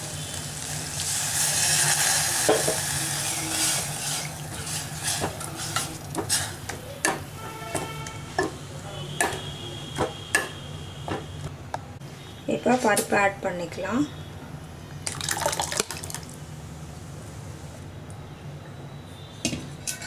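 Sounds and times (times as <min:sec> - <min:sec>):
liquid sizzling in hot pot: 0:00.0 - 0:07.2
ladle scraping steel pot: 0:03.6 - 0:08.5.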